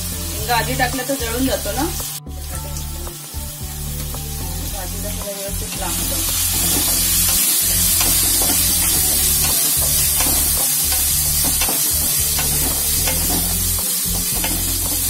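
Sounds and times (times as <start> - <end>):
potatoes sizzling in oil: 0.0 - 15.0
spatula scraping and tapping pan: 6.3 - 15.0.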